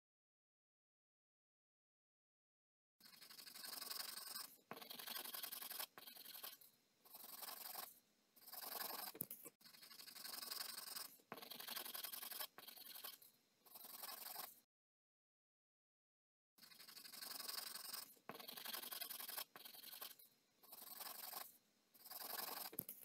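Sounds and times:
pencil scratching on paper: 3.0s - 14.7s, 16.6s - 23.0s.

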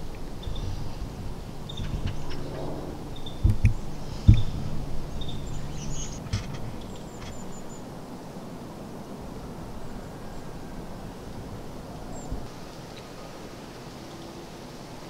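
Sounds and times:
low wind rumble: 0.0s - 15.0s
dull thump: 3.4s - 4.6s.

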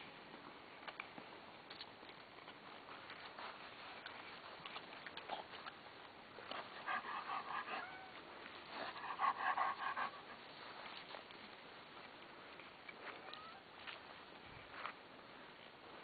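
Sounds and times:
dog panting rapidly: 6.5s - 10.5s.

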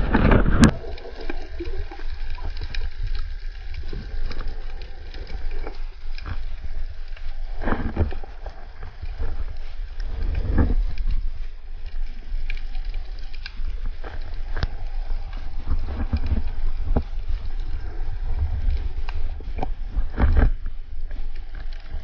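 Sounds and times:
underwater rumble: 0.0s - 22.0s.

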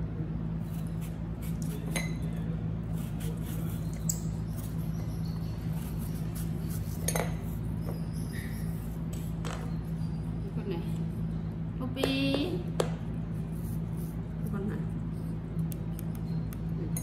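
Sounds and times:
steady low hum: 0.0s - 17.0s
knife cutting apple: 0.6s - 8.0s.

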